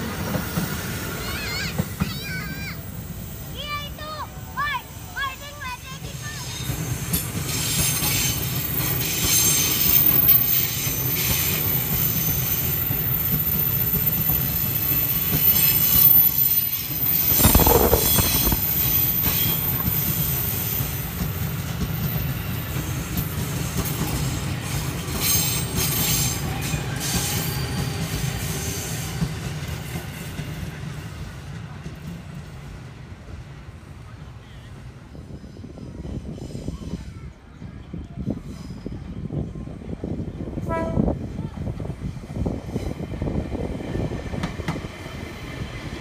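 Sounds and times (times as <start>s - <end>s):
train wheels squealing: 0.0s - 32.6s, 34.4s - 39.7s
train rumble and clatter: 0.0s - 46.0s.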